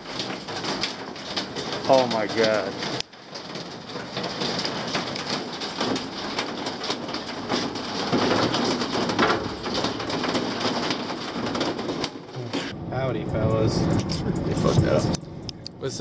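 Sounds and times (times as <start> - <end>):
raindrops tapping: 0.0 - 12.8.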